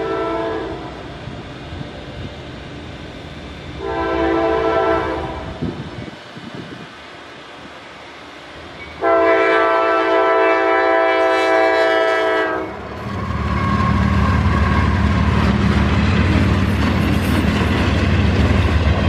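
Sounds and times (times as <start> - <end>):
locomotive air horn blast: 0.0 - 0.9, 3.8 - 5.6, 9.0 - 15.1
diesel locomotive rumble: 0.0 - 19.0
train wheels on rails: 0.0 - 19.0.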